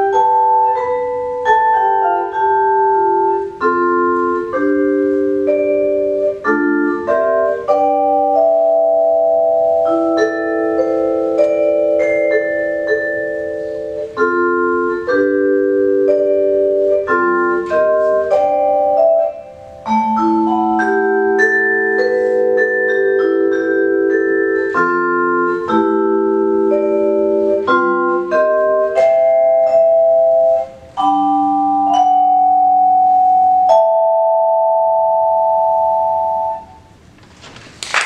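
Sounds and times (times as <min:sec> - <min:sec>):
vibraphone chords: 0:00.0 - 0:37.0.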